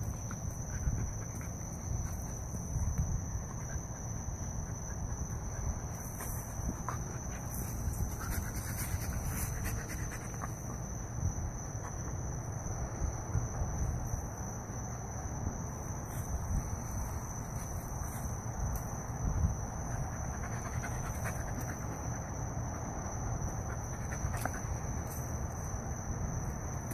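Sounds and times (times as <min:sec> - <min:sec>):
dog panting: 0:20.0 - 0:24.8.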